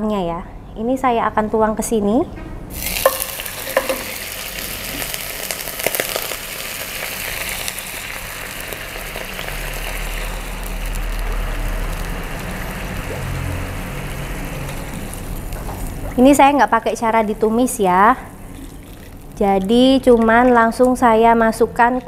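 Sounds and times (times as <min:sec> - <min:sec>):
food sizzling in pan: 0:02.7 - 0:19.4.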